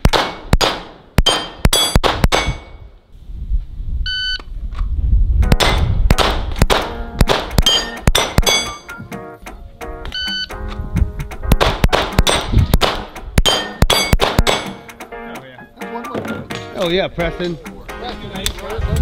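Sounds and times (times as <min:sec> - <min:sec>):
pistol shots: 0:00.0 - 0:02.8, 0:05.5 - 0:08.8, 0:11.5 - 0:14.9
shot timer beep: 0:04.1 - 0:04.5, 0:10.1 - 0:10.6
steel targets clanging: 0:07.6 - 0:09.0, 0:13.4 - 0:15.0.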